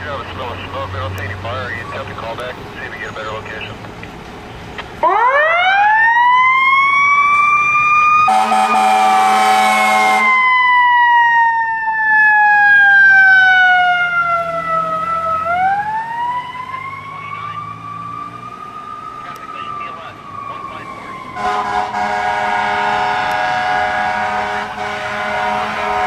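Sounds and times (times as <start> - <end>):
fire truck siren wailing: 0.0 - 26.0
air horn blasting: 8.3 - 10.4, 21.4 - 26.0.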